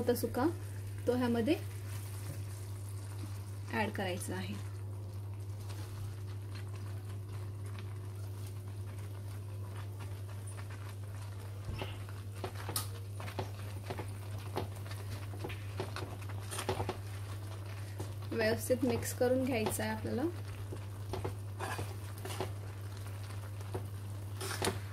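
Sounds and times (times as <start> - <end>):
syrup bubbling: 0.4 - 24.9.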